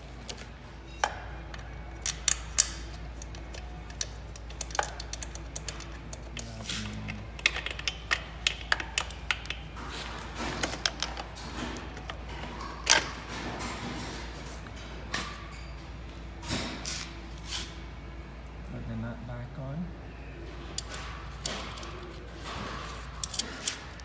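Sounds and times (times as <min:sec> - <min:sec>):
wrench clicking and clinking: 0:02.0 - 0:09.6.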